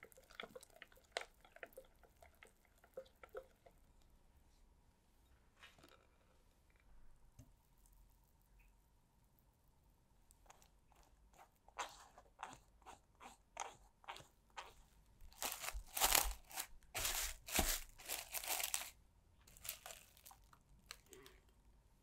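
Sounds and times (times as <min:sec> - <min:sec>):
cling wrap crinkling: 0:14.6 - 0:21.3.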